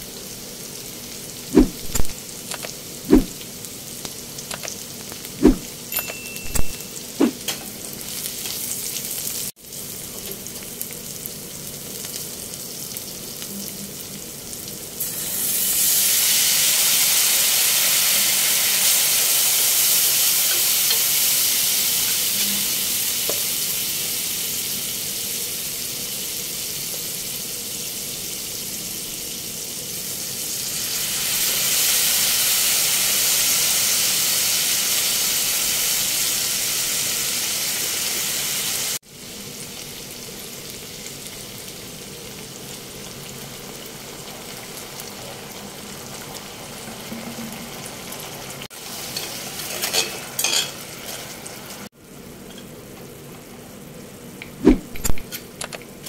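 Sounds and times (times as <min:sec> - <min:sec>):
vegetables sizzling in a wok: 0:00.0 - 0:56.0
spatula clinking and scraping wok: 0:05.9 - 0:07.7, 0:49.0 - 0:51.4.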